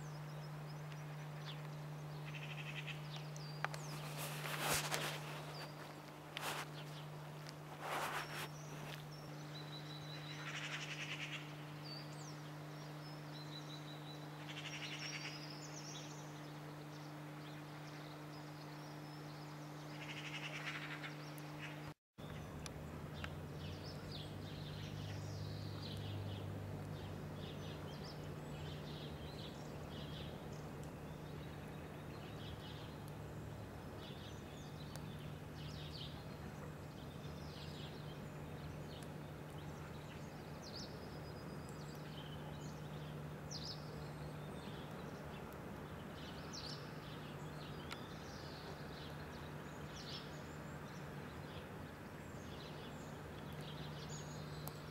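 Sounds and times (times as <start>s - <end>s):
small birds chirping: 0.0s - 54.9s
steady low hum: 0.0s - 54.9s.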